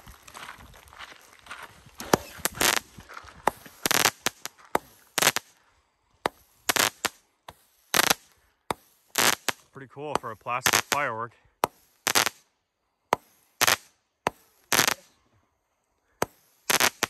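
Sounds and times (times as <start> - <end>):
firework pops: 2.0 - 5.6, 6.2 - 11.0, 11.6 - 12.4, 13.1 - 15.1, 16.2 - 17.0
firework shots launching: 2.0 - 5.6, 6.2 - 12.5, 13.1 - 15.2, 16.2 - 17.0.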